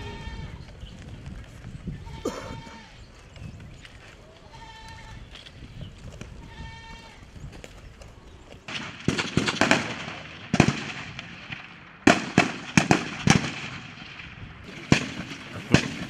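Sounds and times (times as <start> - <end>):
rifle shots: 8.7 - 16.0.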